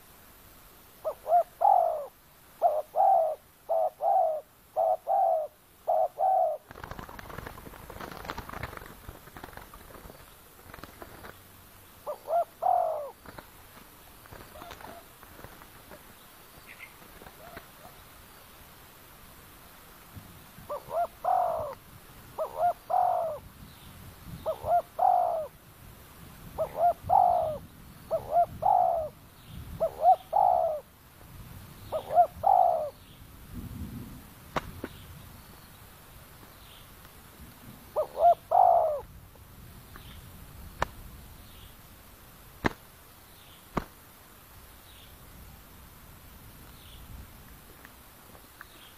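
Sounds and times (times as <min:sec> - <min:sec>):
dove cooing: 0:01.0 - 0:08.6, 0:12.0 - 0:13.4, 0:14.3 - 0:15.5, 0:16.7 - 0:18.0, 0:20.7 - 0:21.8, 0:22.4 - 0:23.5, 0:24.4 - 0:25.6, 0:26.6 - 0:29.2, 0:29.8 - 0:30.9, 0:31.9 - 0:33.0, 0:37.9 - 0:39.1.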